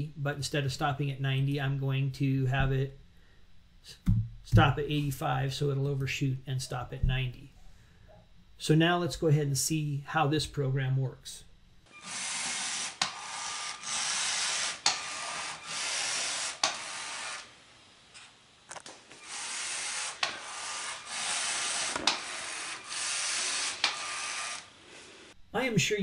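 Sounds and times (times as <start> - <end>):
robot motors whirring: 12.0 - 17.5, 18.8 - 24.8.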